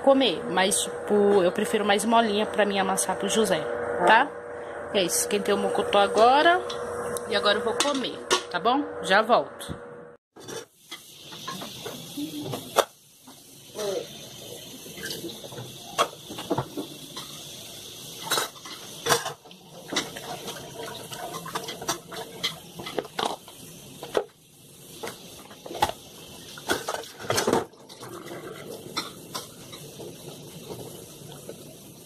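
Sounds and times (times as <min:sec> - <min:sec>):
running tap water: 0:10.8 - 0:32.0
dishes clattering in sink: 0:18.2 - 0:23.4, 0:26.6 - 0:30.9.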